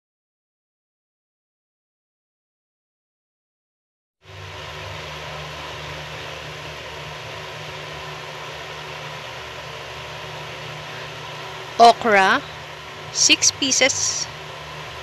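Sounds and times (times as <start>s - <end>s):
low mechanical hum: 4.2s - 15.0s.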